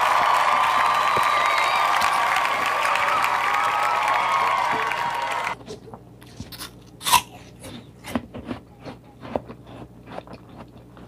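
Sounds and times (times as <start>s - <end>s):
bite into raw apple: 5.7s - 11.0s
crunchy chewing: 6.2s - 11.0s.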